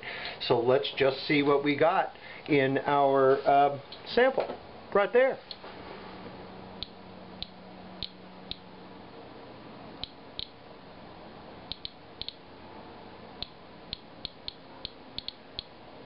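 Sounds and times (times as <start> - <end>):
geiger counter clicking: 6.8 - 8.6, 10.0 - 10.6, 11.7 - 12.4, 13.4 - 15.7.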